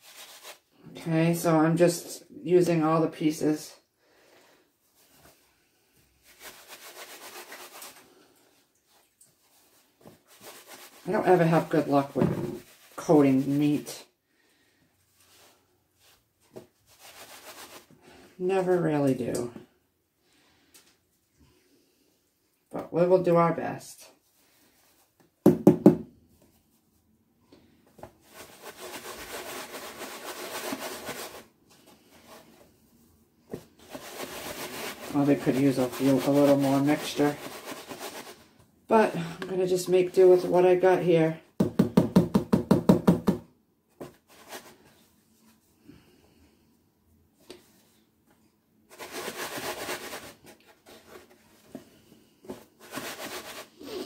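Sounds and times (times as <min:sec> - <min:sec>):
chicken shaken in flour in tub: 0:00.0 - 0:00.7, 0:06.2 - 0:08.4, 0:09.5 - 0:14.0, 0:16.8 - 0:18.2, 0:28.2 - 0:32.4, 0:33.7 - 0:38.5, 0:48.9 - 0:51.2, 0:52.6 - 0:54.0.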